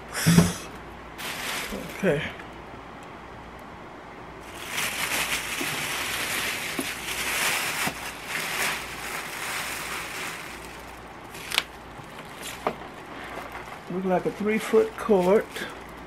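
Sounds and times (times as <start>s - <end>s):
plastic bag rustling: 1.2s - 2.3s, 4.4s - 16.0s.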